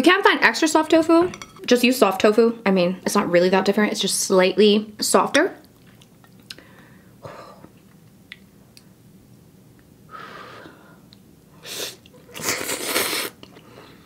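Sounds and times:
soft breath: 0:10.1 - 0:11.1
person slurping noodles: 0:11.7 - 0:13.4.

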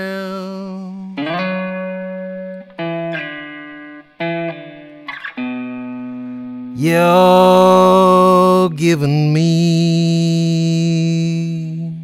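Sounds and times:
blues guitar fill: 0:00.0 - 0:12.0.

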